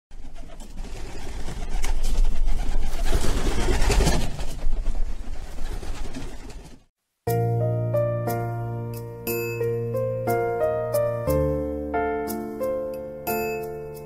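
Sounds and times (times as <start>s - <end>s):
doves flapping wings: 0.1s - 6.9s.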